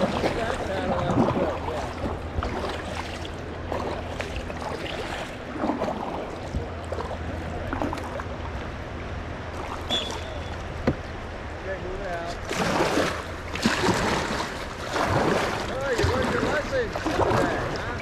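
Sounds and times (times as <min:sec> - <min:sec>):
river water rushing: 0:00.0 - 0:08.3, 0:12.4 - 0:18.0
paddle splashes: 0:00.0 - 0:11.3, 0:12.1 - 0:18.0.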